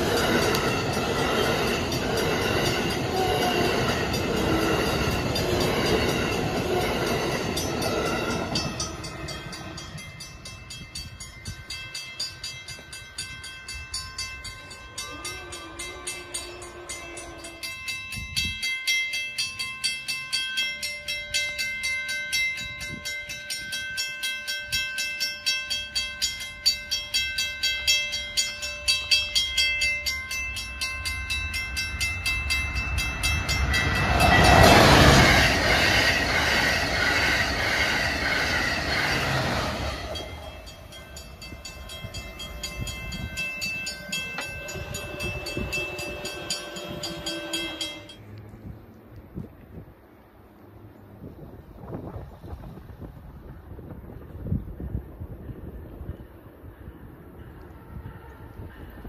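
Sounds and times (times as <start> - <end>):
train rushing past: 0.0 - 11.8, 26.7 - 48.4
crossing warning bell ringing: 0.0 - 48.4.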